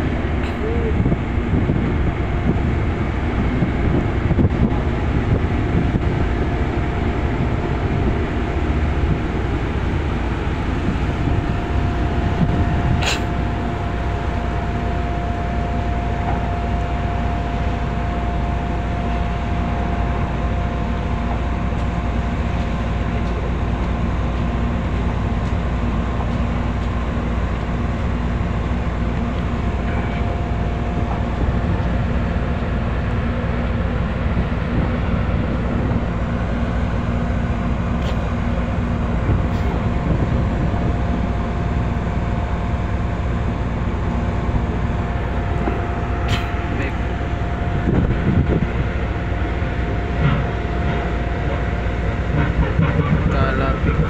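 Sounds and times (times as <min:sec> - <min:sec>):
diesel engines rumbling: 0:00.0 - 0:54.0
thin steady whine: 0:00.0 - 0:54.0
sharp click: 0:13.0 - 0:13.3.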